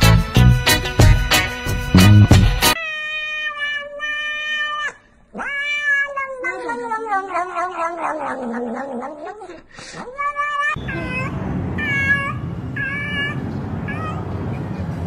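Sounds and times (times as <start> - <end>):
cat meowing and yowling: 2.8 - 14.3.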